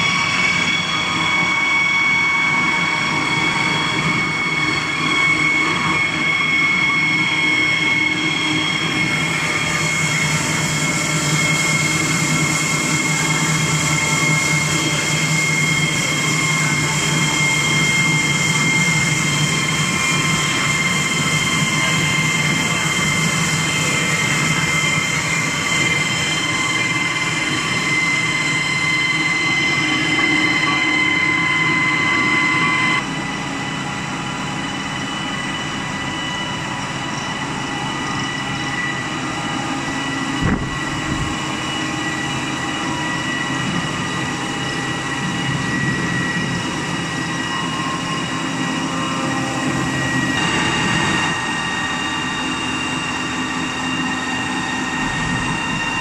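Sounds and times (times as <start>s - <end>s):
machine rumbling and whining: 0.0s - 56.0s.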